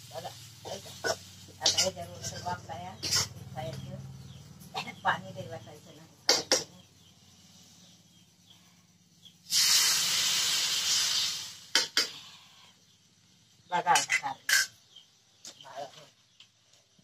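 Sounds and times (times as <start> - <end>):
water hissing in hot oil: 0.0 - 3.8, 9.3 - 13.6.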